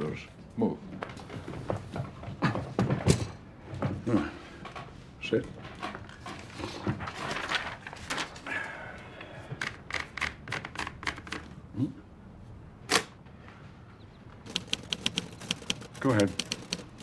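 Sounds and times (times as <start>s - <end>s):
paper rustling: 6.4s - 8.5s, 14.5s - 17.0s
rapid typewriter keystrokes: 9.6s - 11.4s, 14.4s - 17.0s
loud sharp typewriter clack: 14.5s - 17.0s
typewriter platen clicks: 14.5s - 17.0s.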